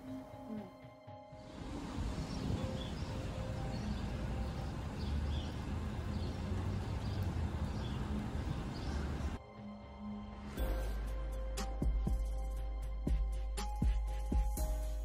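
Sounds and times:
low outdoor rumble: 0:01.6 - 0:09.4.

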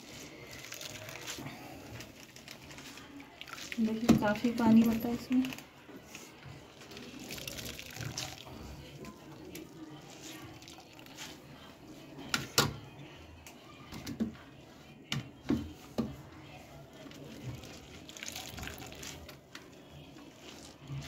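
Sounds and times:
wet squelching of squeezed radish: 0:00.0 - 0:04.1, 0:06.8 - 0:08.6, 0:17.3 - 0:19.4
juice dripping into steel bowl: 0:06.8 - 0:08.6, 0:17.6 - 0:19.6.

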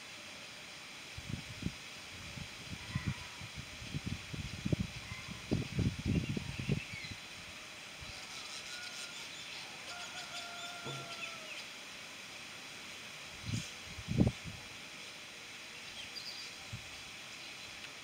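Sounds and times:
long drawn-out bird call: 0:06.1 - 0:11.9
birds chattering high chirps: 0:08.1 - 0:11.7.

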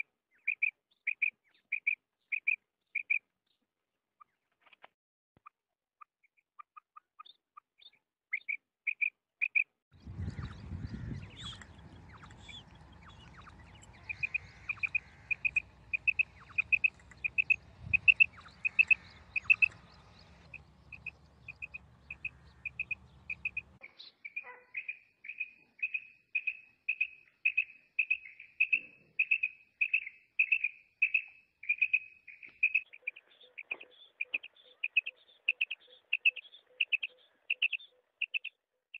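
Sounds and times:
quail calling: 0:08.4 - 0:23.8, 0:24.4 - 0:25.0
low background rumble: 0:10.0 - 0:23.8.

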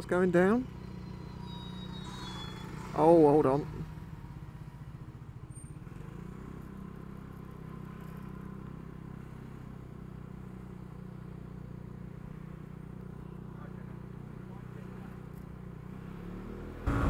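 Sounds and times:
scooter engine running: 0:00.0 - 0:17.0.

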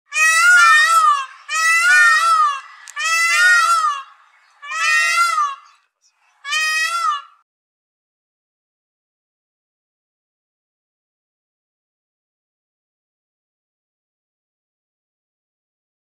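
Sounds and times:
peacock calling loudly: 0:00.1 - 0:07.4.

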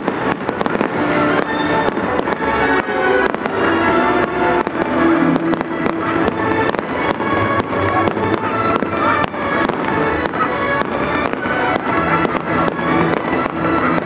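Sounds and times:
fireworks cracking and popping: 0:00.0 - 0:14.0
loud music with held tones: 0:00.1 - 0:14.0.

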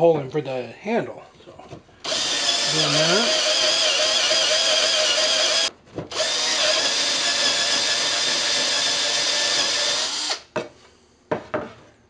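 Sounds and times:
cordless drill boring plywood: 0:02.0 - 0:10.5.

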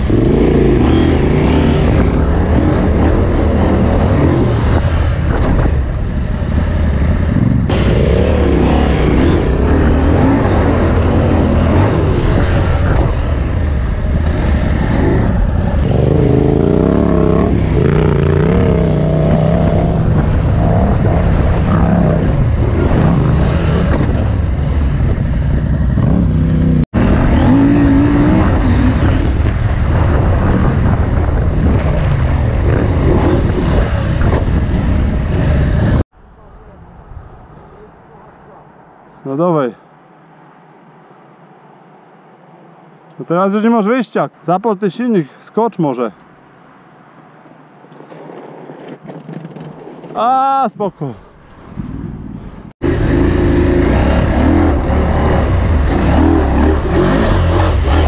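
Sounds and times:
motorcycle engine revving: 0:00.0 - 0:36.1, 0:52.8 - 0:58.0.

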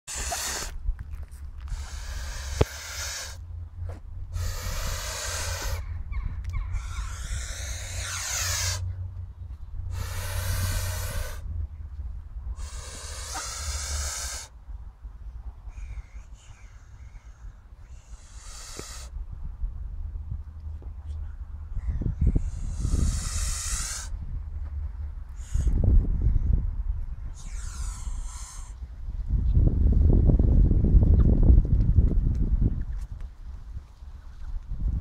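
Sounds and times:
goose hissing: 0:00.0 - 0:00.8, 0:01.7 - 0:03.4, 0:04.3 - 0:05.8, 0:06.8 - 0:08.8, 0:09.9 - 0:11.4, 0:12.6 - 0:14.5, 0:17.8 - 0:19.1, 0:22.4 - 0:24.1, 0:25.4 - 0:25.7, 0:27.4 - 0:28.8.

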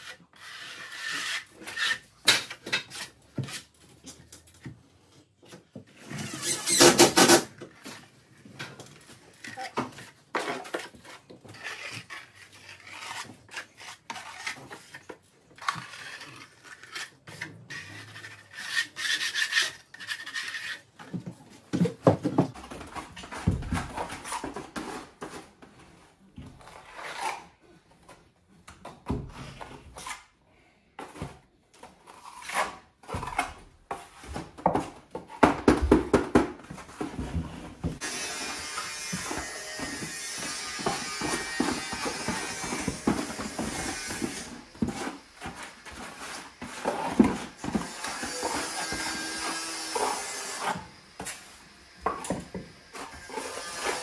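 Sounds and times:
scraping on timber: 0:37.0 - 0:51.4.

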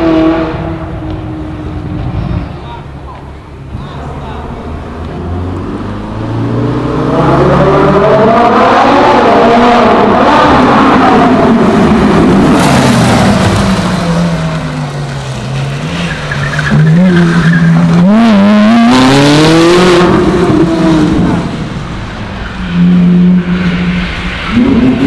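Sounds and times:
sports car engine revving: 0:04.4 - 0:14.9.

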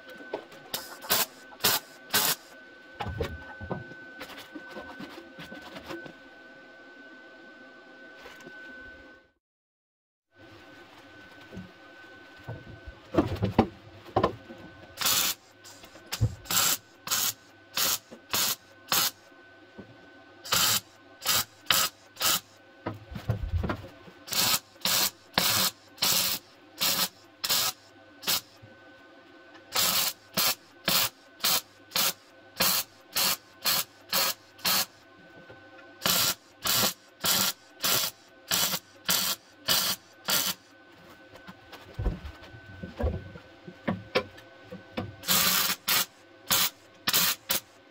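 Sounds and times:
welding arc crackling: 0:00.8 - 0:02.4, 0:15.0 - 0:19.2, 0:24.3 - 0:28.5, 0:29.8 - 0:34.9, 0:36.0 - 0:40.6, 0:45.2 - 0:47.6.

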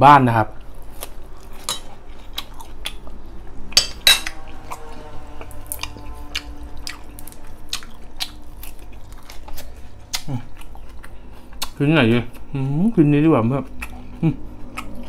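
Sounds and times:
fork clinking on a plate: 0:03.8 - 0:04.4
chewing mouth clicks and smacks: 0:13.8 - 0:15.0.

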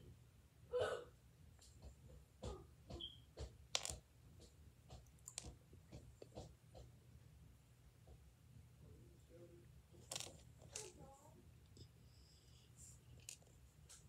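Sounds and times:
small objects clicking and tapping: 0:02.9 - 0:06.9, 0:10.0 - 0:11.0, 0:13.2 - 0:14.0.

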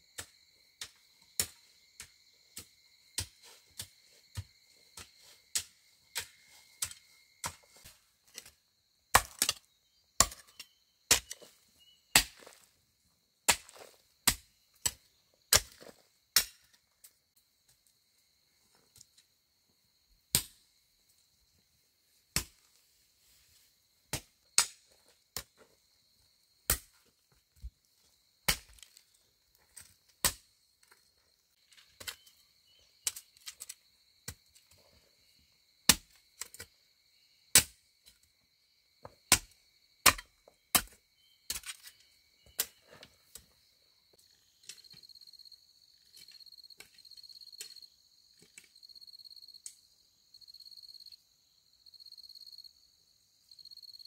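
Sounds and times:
pulsing insect chirping: 0:08.6 - 0:13.4, 0:29.1 - 0:39.0, 0:39.6 - 0:54.0.

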